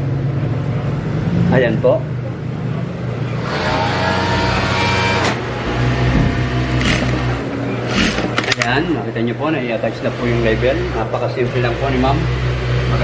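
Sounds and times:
sewing machine motor: 3.4s - 9.0s
sewing machine whining: 3.4s - 9.0s
short clicks: 7.9s - 8.8s.

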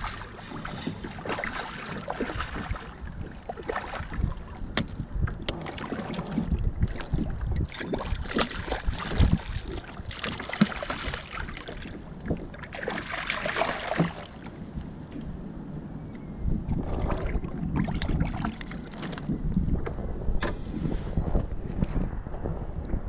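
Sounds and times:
water splashing: 0.0s - 4.6s, 5.5s - 14.5s, 16.7s - 19.3s
wind rumbling on microphone: 0.0s - 23.0s.

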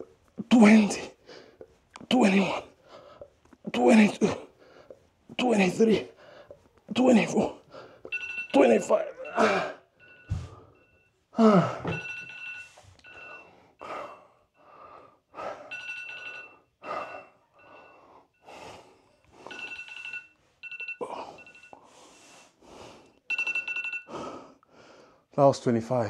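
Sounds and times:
heavy gasping breaths: 0.0s - 8.2s, 13.1s - 20.1s, 21.0s - 23.2s, 24.1s - 25.3s
electronic timer alarm beeping: 8.0s - 11.3s, 12.0s - 13.7s, 23.3s - 24.1s.

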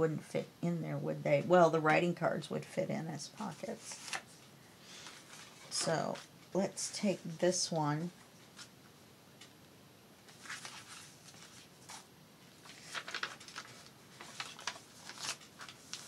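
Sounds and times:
paper cards rustling and sliding: 3.6s - 6.3s, 10.3s - 16.0s.

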